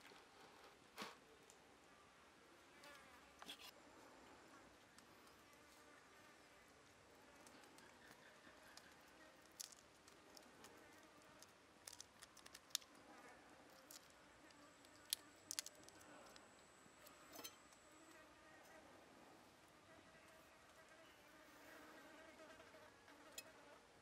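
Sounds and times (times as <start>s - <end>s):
faint insect buzz: 2.6s - 12.0s, 12.8s - 24.0s
shrimp being peeled by hand: 7.4s - 13.0s, 13.7s - 16.4s.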